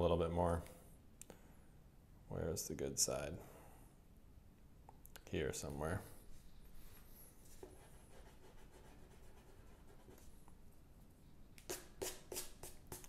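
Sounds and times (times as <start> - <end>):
faint room noise: 0.0 - 13.0
pencil scratching on paper: 7.6 - 10.3.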